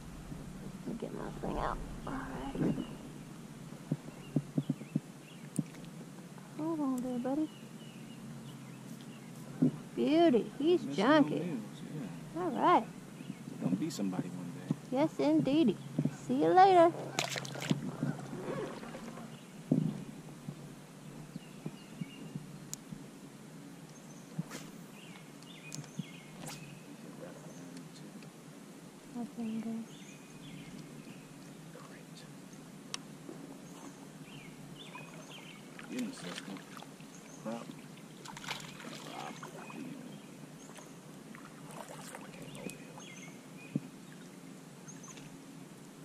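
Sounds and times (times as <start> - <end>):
steady low hiss: 0.0 - 46.0
water splashing: 16.9 - 19.4, 34.8 - 40.1, 40.7 - 43.0
faint bird chirps: 33.6 - 37.9, 38.6 - 45.3.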